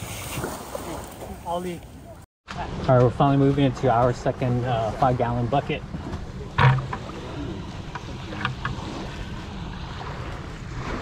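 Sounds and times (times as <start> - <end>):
waves washing against shore: 2.5 - 11.0.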